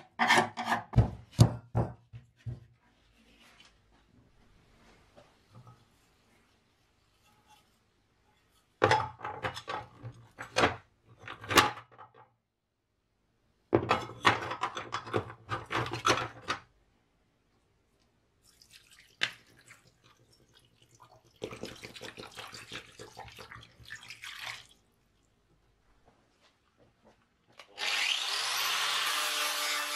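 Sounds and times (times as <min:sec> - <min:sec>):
liquid pouring and splashing: 0:18.4 - 0:25.3.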